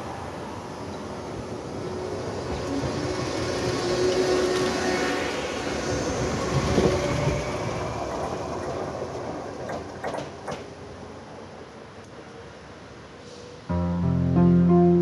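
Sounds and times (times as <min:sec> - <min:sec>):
train running noise: 0:00.0 - 0:13.7
sharp clacks: 0:09.6 - 0:10.7.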